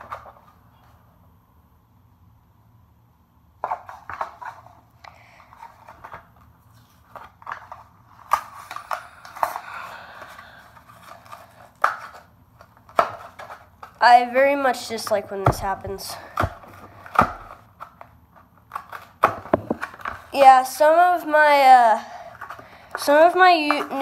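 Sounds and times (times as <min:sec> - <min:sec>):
plastic blister crinkling: 0:05.4 - 0:20.6.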